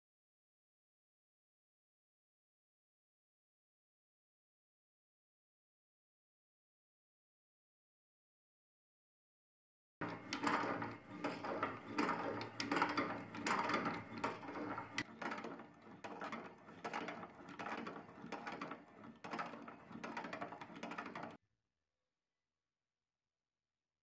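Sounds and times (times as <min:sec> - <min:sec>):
meat grinder clicking and grating: 0:10.0 - 0:21.4.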